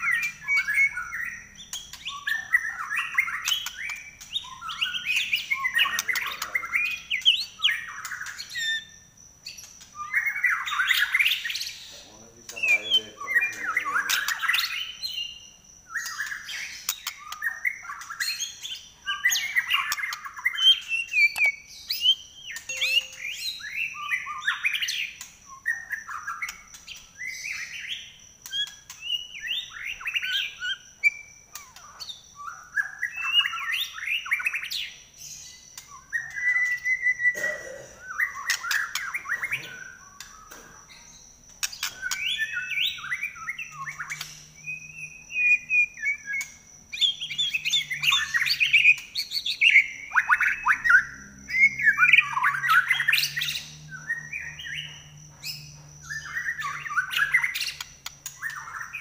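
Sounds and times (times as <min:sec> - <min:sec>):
bird singing whistles and chatter: 0:00.0 - 0:55.1.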